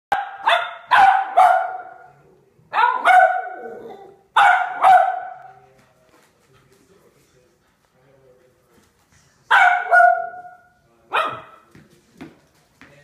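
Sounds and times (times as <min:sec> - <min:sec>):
dog barking: 0:00.1 - 0:02.1, 0:02.7 - 0:05.5, 0:09.5 - 0:11.6.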